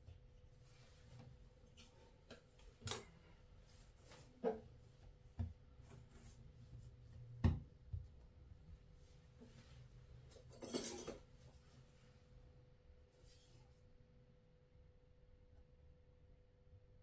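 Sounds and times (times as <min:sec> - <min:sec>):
hands shaping bread dough: 0:00.0 - 0:10.3.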